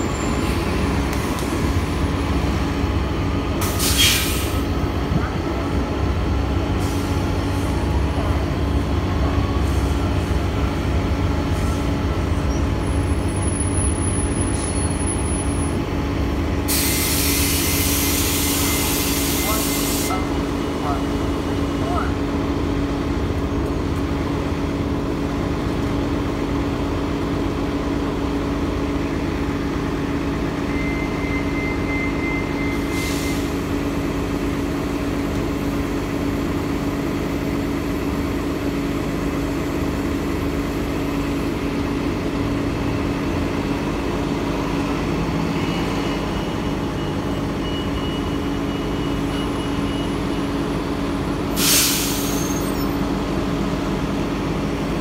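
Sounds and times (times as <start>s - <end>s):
buses idling: 0.0s - 55.0s
air brake hiss: 3.6s - 4.6s, 16.7s - 20.2s, 32.7s - 33.6s, 51.5s - 52.8s.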